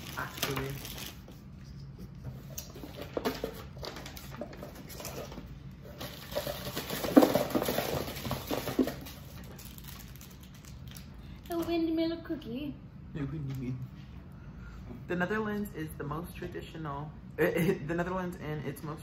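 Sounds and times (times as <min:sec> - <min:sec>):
packaging rustling and crinkling: 0:00.0 - 0:01.5, 0:02.6 - 0:11.7.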